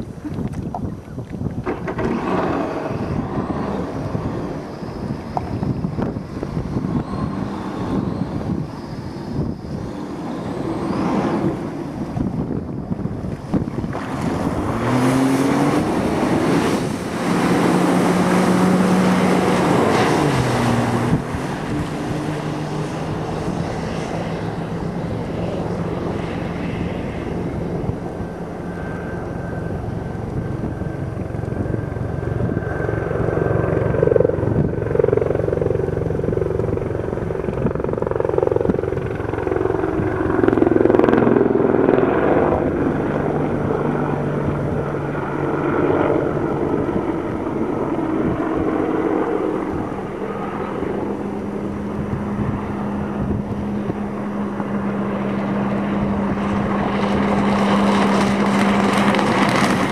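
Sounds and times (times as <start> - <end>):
watercraft engine revving: 13.8 - 45.5, 49.4 - 59.9.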